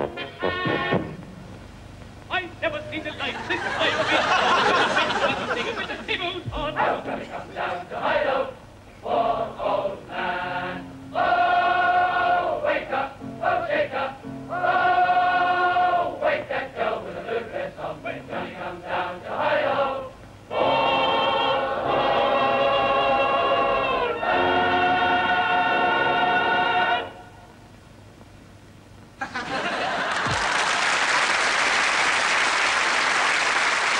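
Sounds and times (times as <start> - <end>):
choir singing: 6.6 - 27.4.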